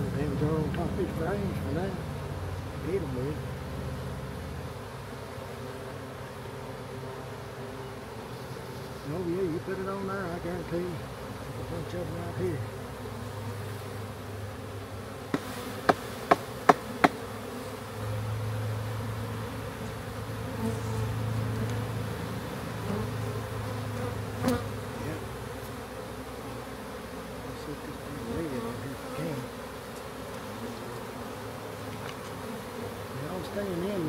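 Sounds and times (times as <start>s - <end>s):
bees buzzing: 0.0s - 34.0s
sharp knocks: 15.3s - 17.2s.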